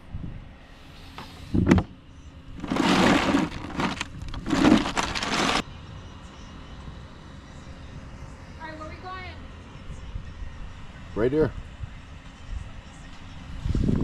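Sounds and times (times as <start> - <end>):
ice cubes rattling in a cooler: 2.6 - 5.6.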